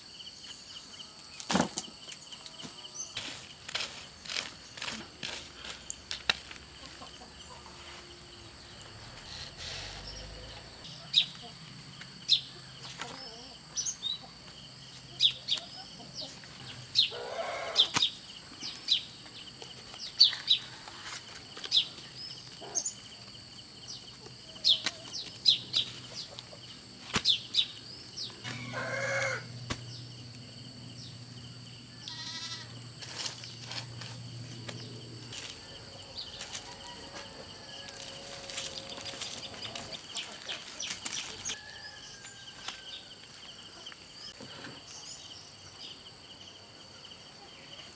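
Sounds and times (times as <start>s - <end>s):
high insect drone: 0.0s - 15.3s, 16.2s - 47.9s
bird chirping: 12.2s - 20.8s
farm animal calling: 17.0s - 17.9s, 28.4s - 29.5s, 32.0s - 32.8s.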